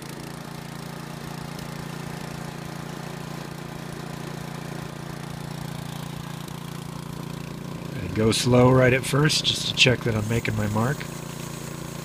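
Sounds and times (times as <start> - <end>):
engine running at full throttle: 0.0 - 12.0
band saw blade spinning: 9.4 - 12.0.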